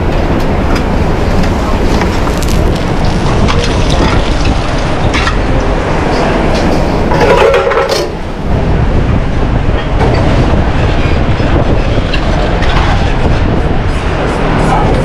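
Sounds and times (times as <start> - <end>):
low kitchen rumble: 0.0 - 15.0
clatter of plates and metal: 6.6 - 8.1.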